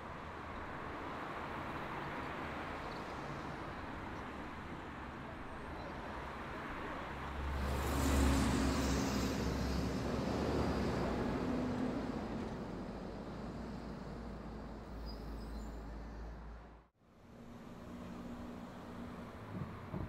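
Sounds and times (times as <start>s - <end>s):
city road traffic: 0.0s - 20.0s
vehicle passing close by: 7.5s - 12.3s.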